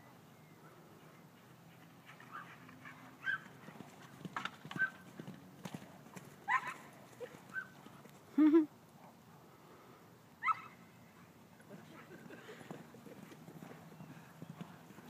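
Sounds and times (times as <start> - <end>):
dog barking: 3.2 - 3.4, 6.5 - 6.9
hooves thudding on turf: 12.3 - 15.0.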